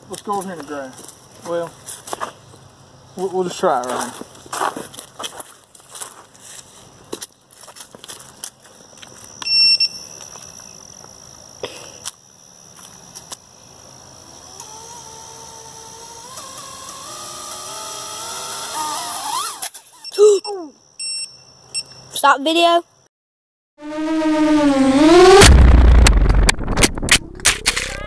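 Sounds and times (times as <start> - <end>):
shrill buzzer beep: 9.5 - 10.2, 20.0 - 22.1.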